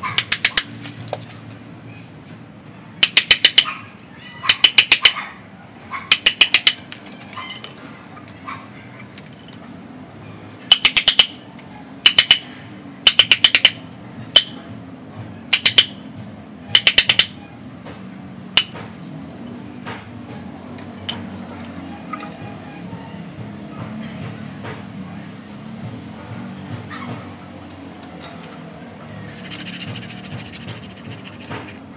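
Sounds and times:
hammer striking chisel: 0.2s - 0.8s, 3.0s - 3.7s, 4.5s - 5.2s, 6.1s - 6.8s, 10.7s - 11.4s, 12.0s - 12.5s, 13.1s - 13.8s, 14.4s - 14.6s, 15.5s - 16.0s, 16.7s - 17.4s, 18.6s - 18.9s, 29.4s - 31.8s.

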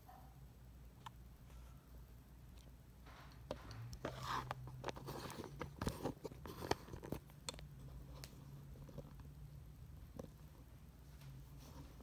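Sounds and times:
low steady hum: 0.0s - 12.0s
rustling and crackling handling: 3.1s - 9.4s.

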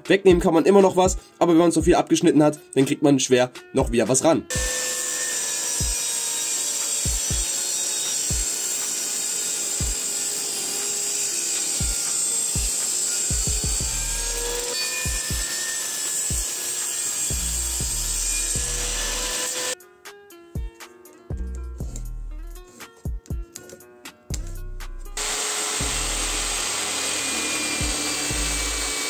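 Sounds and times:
background music with low beat: 0.0s - 4.8s, 5.8s - 6.0s, 6.9s - 7.6s, 8.3s - 8.6s, 9.8s - 10.2s, 11.6s - 15.5s, 17.3s - 29.0s
table saw cutting wood: 4.5s - 19.8s, 25.1s - 29.0s.

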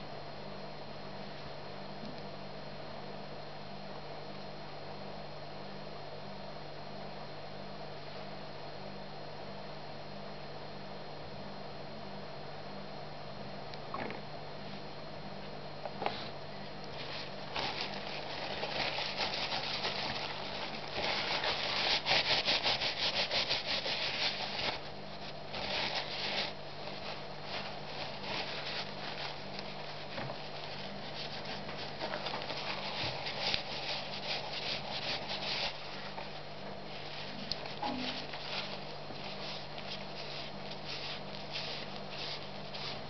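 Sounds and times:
paper towel rubbing on metal: 17.0s - 43.0s.

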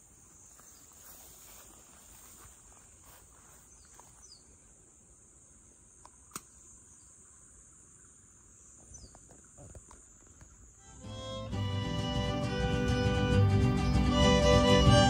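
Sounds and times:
insects chirring: 0.0s - 13.4s
sharp click: 6.0s - 6.6s.

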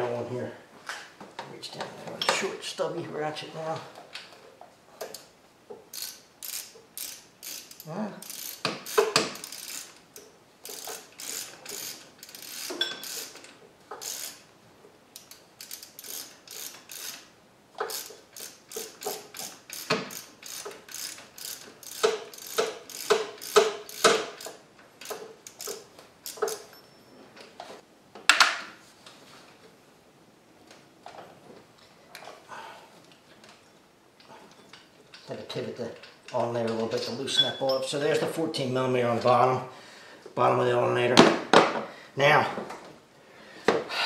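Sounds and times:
hand ratchet clicking: 5.0s - 14.5s, 15.2s - 26.8s.

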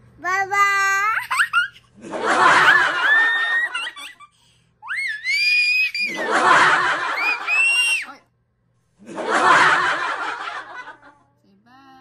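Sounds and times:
girl laughing and squealing: 2.9s - 6.4s, 7.0s - 8.1s.

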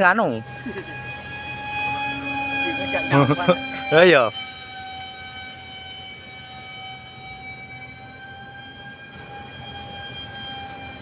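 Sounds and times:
model jet motor whining: 0.0s - 11.0s.

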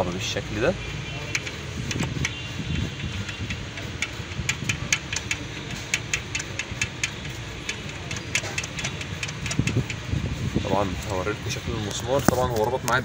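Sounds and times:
steady low hum: 1.3s - 13.0s
bolt tightening metallic clicks: 3.1s - 10.1s.

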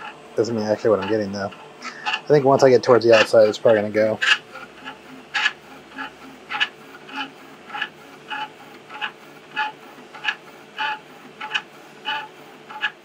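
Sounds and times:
stepper motors whining: 0.0s - 13.0s.

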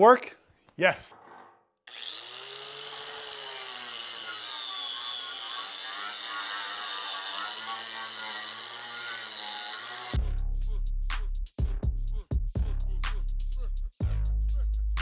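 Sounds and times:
angle grinder whining: 1.9s - 10.2s.

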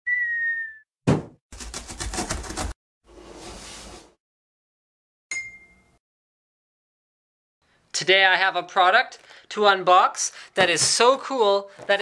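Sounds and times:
falling whistle: 0.0s - 0.9s
knock: 1.1s - 1.4s.

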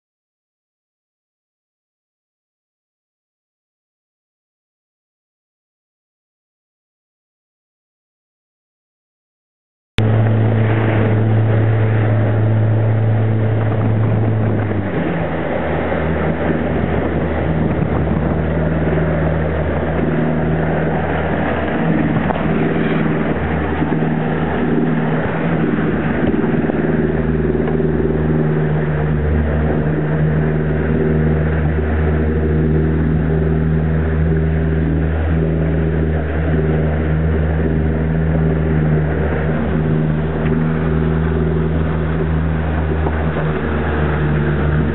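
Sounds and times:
outboard motor drone: 10.0s - 44.9s
rushing water: 10.0s - 44.9s
wind: 10.0s - 44.9s.

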